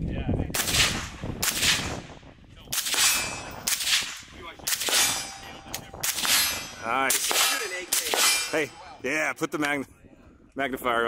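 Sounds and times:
suppressed rifle shots: 0:00.6 - 0:02.0, 0:02.8 - 0:08.6.

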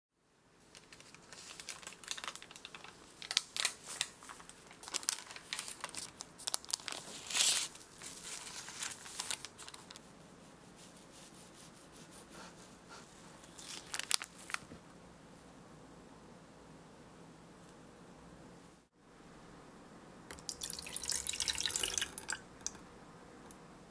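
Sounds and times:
baking paper crinkling and tearing: 0:00.7 - 0:10.1, 0:13.4 - 0:14.7.

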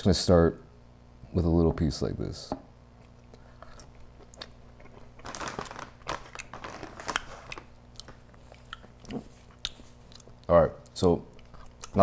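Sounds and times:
chewing with mouth clicks: 0:03.0 - 0:05.2, 0:06.3 - 0:12.0.

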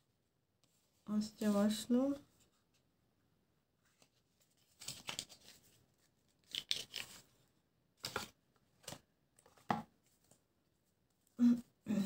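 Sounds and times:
paper rustling: 0:03.8 - 0:07.4, 0:08.0 - 0:10.4.

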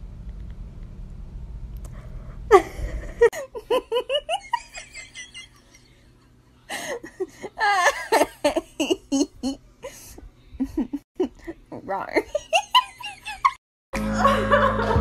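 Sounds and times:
person laughing and exclaiming: 0:02.5 - 0:05.8, 0:06.7 - 0:11.6, 0:12.2 - 0:15.0
woman giggling: 0:02.5 - 0:06.0, 0:06.7 - 0:13.6.

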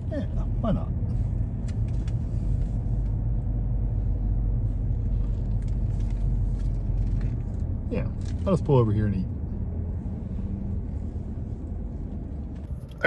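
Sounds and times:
car engine and tyres rumbling: 0:00.0 - 0:13.0.

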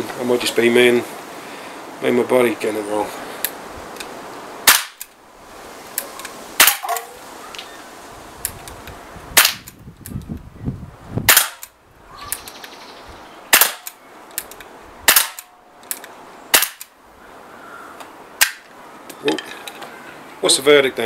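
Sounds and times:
air pistol shots: 0:04.6 - 0:05.0, 0:06.6 - 0:07.0, 0:09.4 - 0:09.7, 0:11.3 - 0:11.7, 0:13.5 - 0:14.0, 0:15.1 - 0:15.5, 0:16.5 - 0:16.9.

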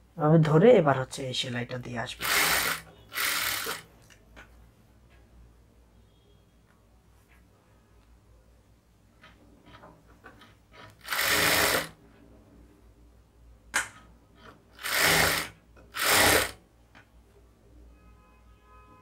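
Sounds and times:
sewing machine stitching: 0:02.2 - 0:03.9, 0:10.7 - 0:12.0, 0:14.8 - 0:16.6.

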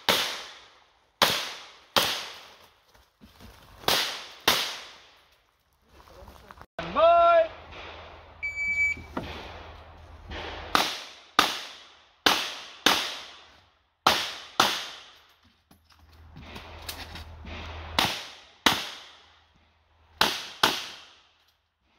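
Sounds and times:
revolver gunshots: 0:09.2 - 0:13.4.

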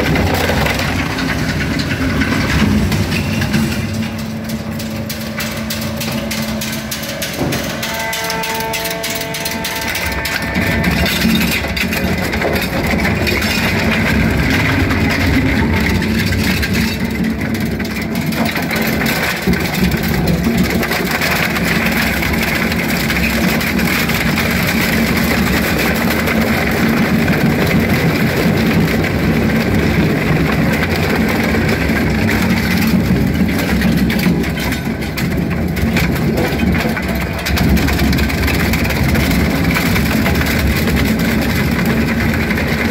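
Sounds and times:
wood cracking and splintering: 0:00.0 - 0:08.2, 0:09.0 - 0:42.9
shredder machine drone: 0:00.0 - 0:42.9.

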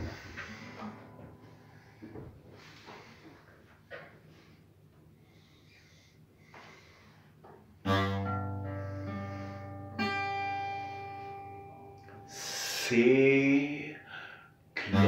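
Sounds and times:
acoustic guitar chord strummed: 0:00.0 - 0:02.0, 0:07.9 - 0:12.6.

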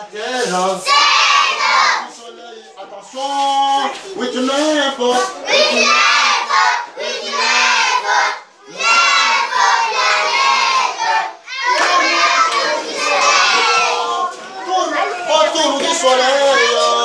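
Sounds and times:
children chanting together: 0:00.7 - 0:02.1, 0:05.1 - 0:17.0.

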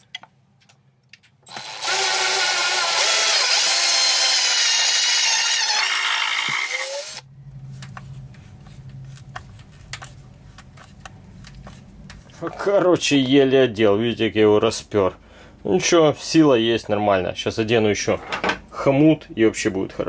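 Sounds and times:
cordless drill driving a screw: 0:01.5 - 0:07.2
scraping and small clicks: 0:08.9 - 0:12.4.

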